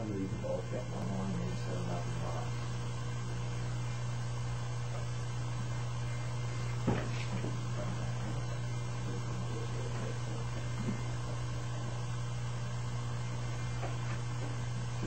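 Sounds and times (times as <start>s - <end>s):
low hum and hiss: 0.0s - 15.0s.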